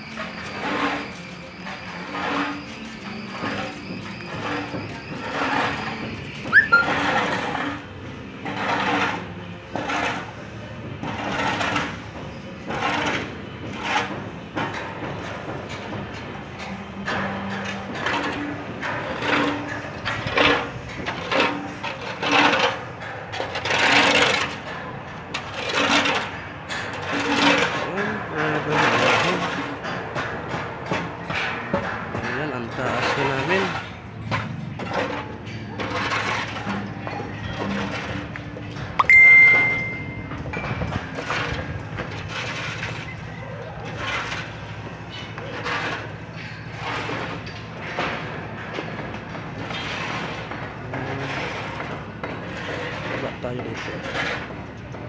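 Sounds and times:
rhythmic scraping strokes: 0.0 - 54.9
metal struck and ringing: 39.0 - 40.3.

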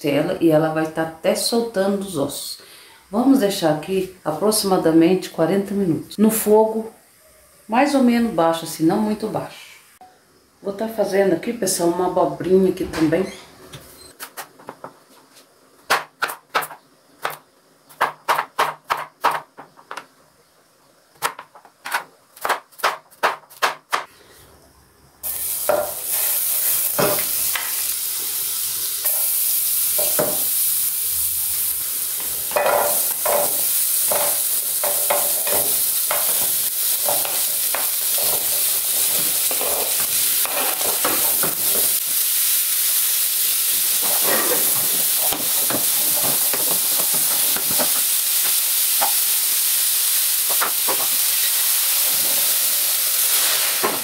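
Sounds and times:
vegetables sizzling in oil: 0.0 - 12.7, 25.2 - 54.0.

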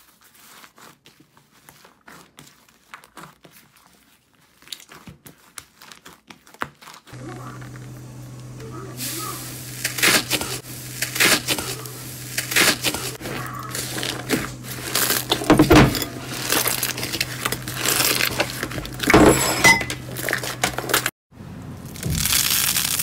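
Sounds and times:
slime crackling and popping: 21.9 - 23.0.

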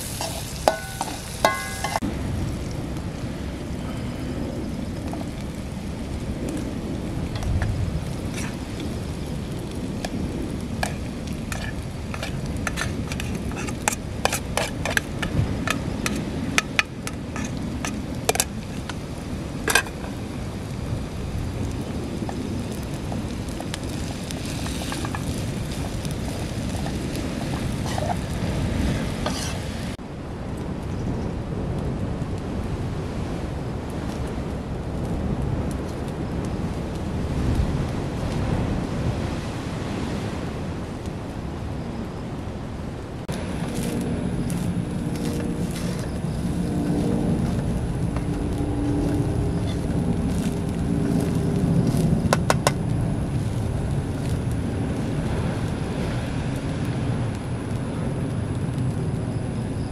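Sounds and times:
wind: 0.0 - 59.9
metal spoon clinking on pot: 0.2 - 2.0.

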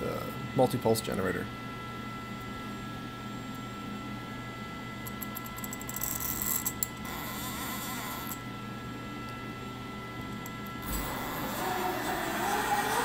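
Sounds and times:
lathe drive hum with whine: 0.0 - 13.0
machine axis whirr: 5.1 - 8.5, 10.4 - 13.0.

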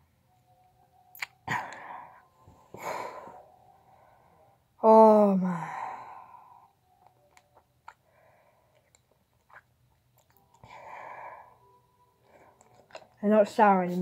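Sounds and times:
wet mouth clicks and smacks: 1.1 - 1.4.

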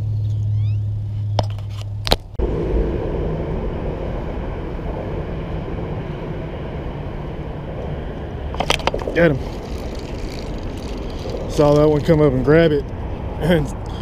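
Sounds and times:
highway traffic rumble: 0.0 - 14.0
steady low hum: 0.0 - 14.0.

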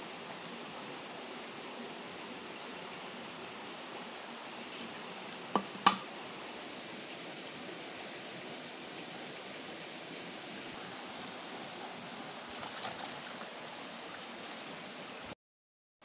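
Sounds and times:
rocky stream rushing: 0.0 - 15.4
sharp knocks: 5.5 - 6.1.

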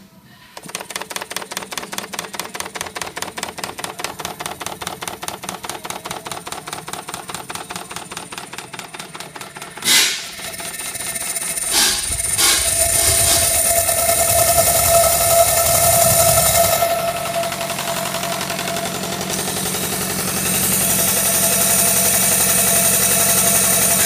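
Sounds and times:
steam locomotive exhaust beats: 0.0 - 24.0
loud bursts of noise: 9.4 - 24.0.

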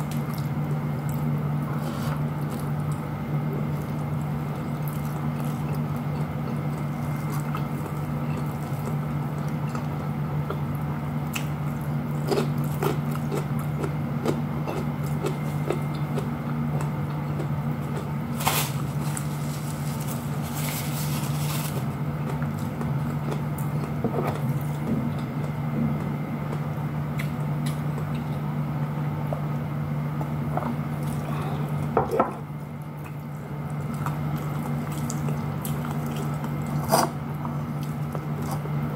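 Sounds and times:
chewing and mouth sounds: 0.0 - 28.5, 32.6 - 38.9
steady low hum: 0.0 - 38.9
tissue paper rustle: 18.4 - 21.8.

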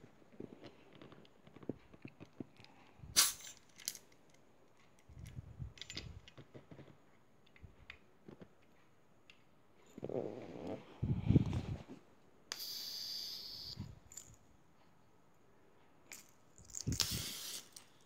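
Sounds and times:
sharp gas burst: 3.1 - 3.5, 12.5 - 13.8, 16.9 - 17.8.

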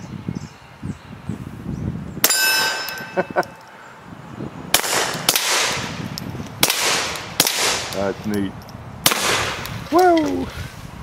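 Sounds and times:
steel target ringing: 2.2 - 3.6
muffled pistol shots: 4.7 - 6.0, 6.6 - 8.1, 9.0 - 9.7.

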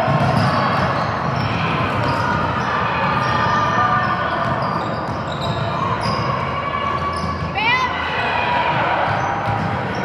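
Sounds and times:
basketball bouncing on gym floor: 0.0 - 3.4, 8.7 - 10.0
din of spectators' voices: 0.0 - 10.0.

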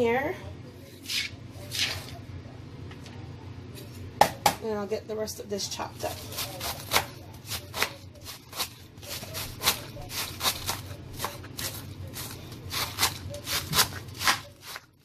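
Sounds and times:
knife chopping cabbage on board: 6.1 - 14.9.

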